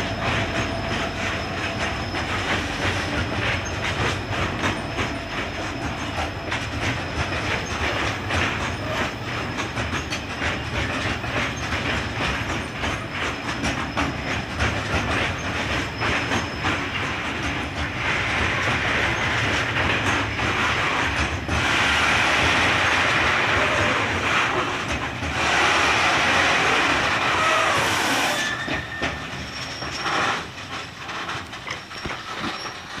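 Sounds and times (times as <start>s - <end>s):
train wheels clattering over rail joints: 0.0s - 33.0s
faint wheel squeal: 25.5s - 30.5s, 31.4s - 33.0s.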